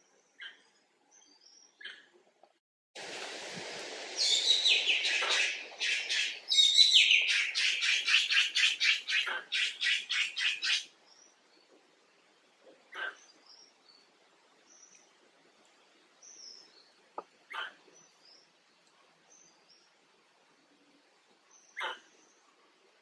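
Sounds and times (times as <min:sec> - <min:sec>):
steady hiss: 0:03.0 - 0:09.9.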